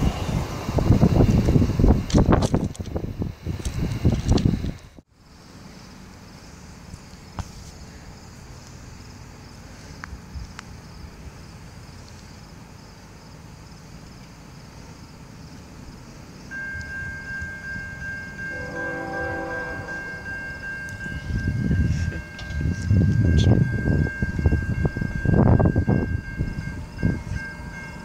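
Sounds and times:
low train rumble: 0:00.0 - 0:28.0
level crossing bell ringing: 0:16.7 - 0:21.4
train horn blast: 0:18.5 - 0:20.6.

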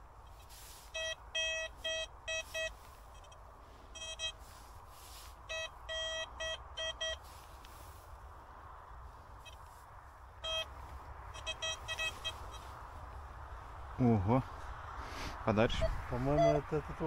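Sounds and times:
metal detector beeps: 0:00.3 - 0:07.3, 0:10.4 - 0:12.7, 0:15.8 - 0:16.7.

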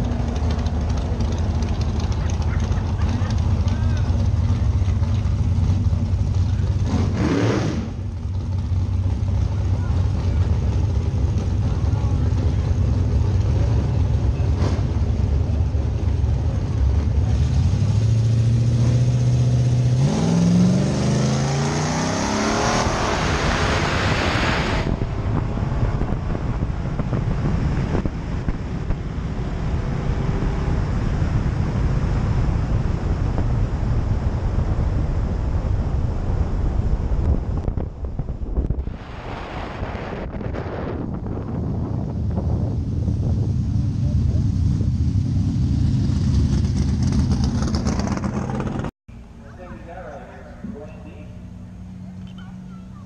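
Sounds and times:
drag car engine revving: 0:00.0 - 0:34.6, 0:40.4 - 0:48.9
wind noise on microphone: 0:22.8 - 0:48.2.

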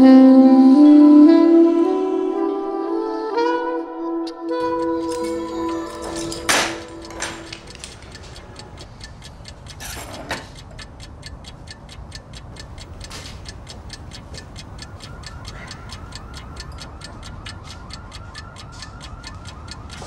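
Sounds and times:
clock ticking: 0:04.3 - 0:20.0.

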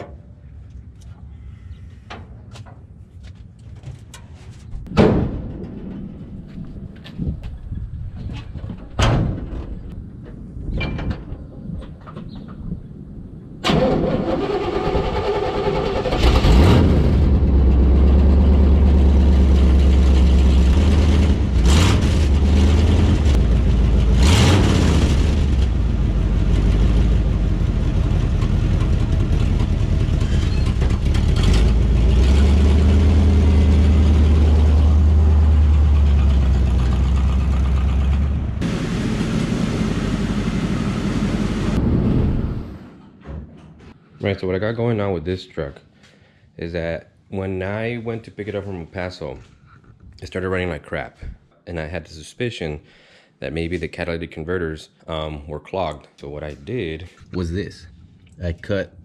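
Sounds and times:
pickup engine starting and revving: 0:13.6 - 0:42.9.

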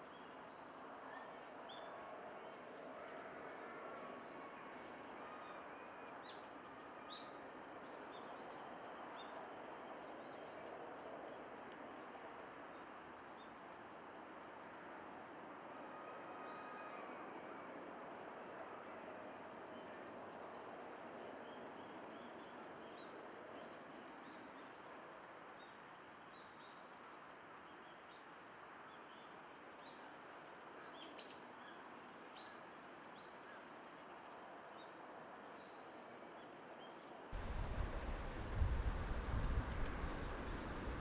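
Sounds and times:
distant background hush: 0:37.4 - 0:41.0
wind rumble on microphone: 0:37.4 - 0:41.0.

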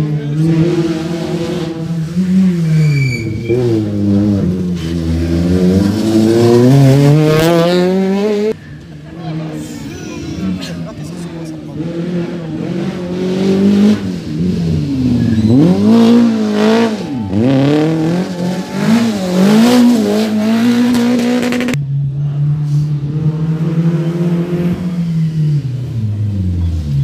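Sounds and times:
rally car engine accelerating: 0:00.0 - 0:08.6, 0:10.4 - 0:27.0
lower rally car engine note: 0:11.7 - 0:27.0.

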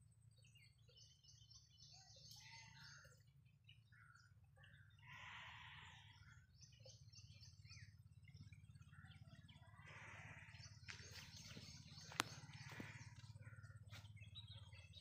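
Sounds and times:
birdsong chirps and calls: 0:00.0 - 0:15.0
low steady hum: 0:00.0 - 0:15.0.

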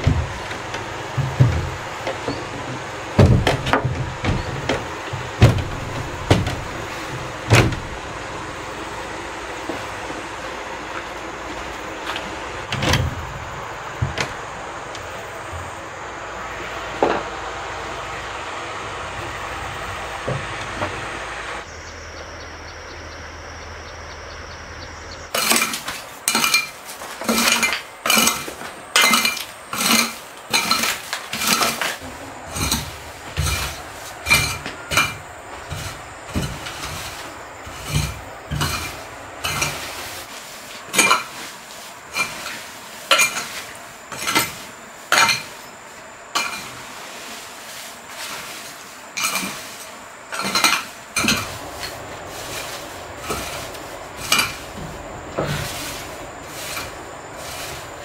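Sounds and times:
knocks: 0:00.0 - 0:08.0
hoe scraping wood chips: 0:00.0 - 0:58.0.

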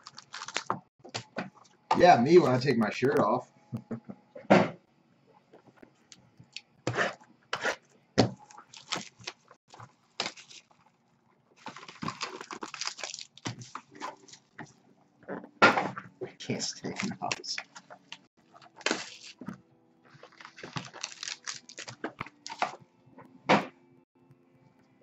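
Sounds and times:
cardboard rustling: 0:08.5 - 0:10.8, 0:11.6 - 0:14.6, 0:16.8 - 0:22.8.

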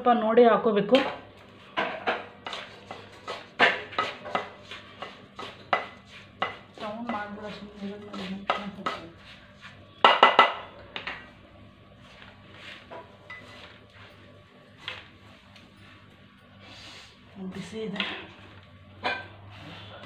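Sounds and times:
wooden spatula scraping a pan: 0:02.1 - 0:09.8
knocks against a pan: 0:10.0 - 0:11.2.

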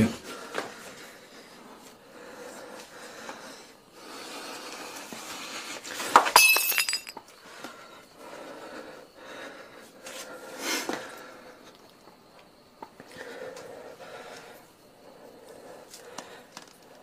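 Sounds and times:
glass breaking: 0:06.2 - 0:07.1
glass pieces clinking: 0:06.2 - 0:07.2.

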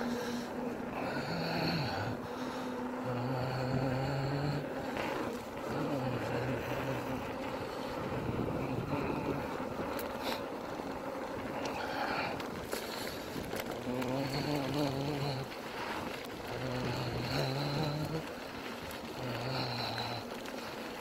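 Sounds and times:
small vehicle motor humming: 0:00.0 - 0:21.0
wind rushing over microphone: 0:06.4 - 0:10.2.

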